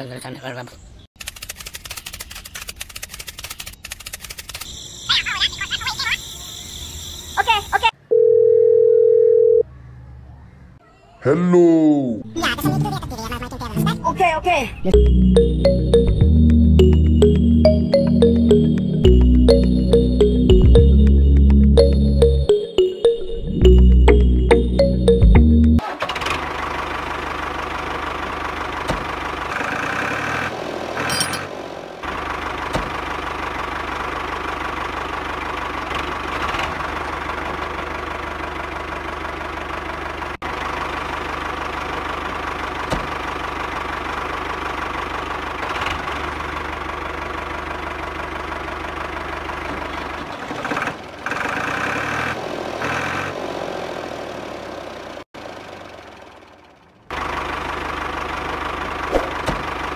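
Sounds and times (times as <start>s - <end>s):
small engine running: 25.8s - 59.9s.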